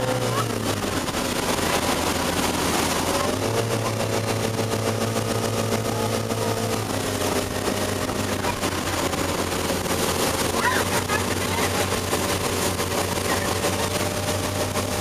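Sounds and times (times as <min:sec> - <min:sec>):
motorboat engine drone: 0:00.0 - 0:15.0
rushing wake water: 0:00.0 - 0:15.0
wind: 0:00.0 - 0:15.0.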